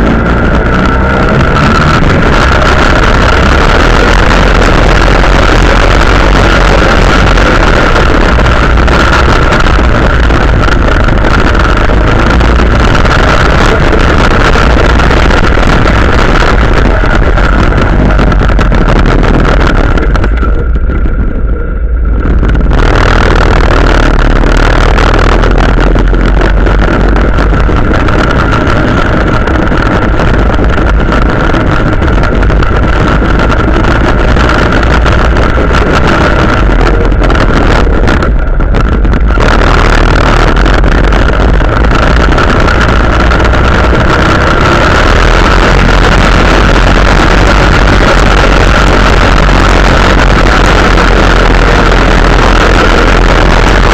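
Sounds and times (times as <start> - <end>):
quad bike engine running hard: 0.0 - 53.9.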